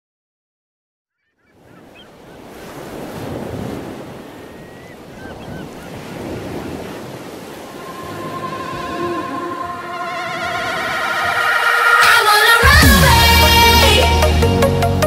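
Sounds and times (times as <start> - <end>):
ocean surf breaking: 1.6 - 14.5
electronic music wavering tones: 7.6 - 14.4.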